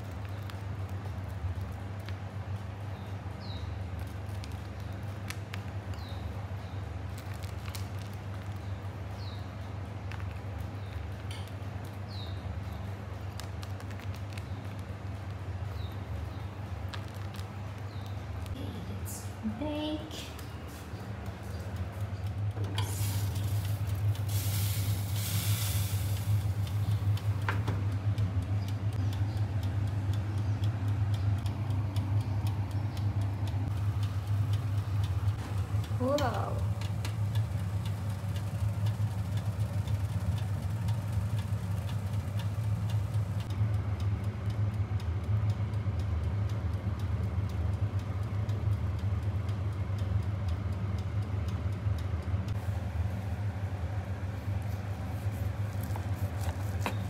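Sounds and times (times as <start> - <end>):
light ticks: 0.0 - 18.6, 26.2 - 52.6
low background hum: 0.0 - 57.0.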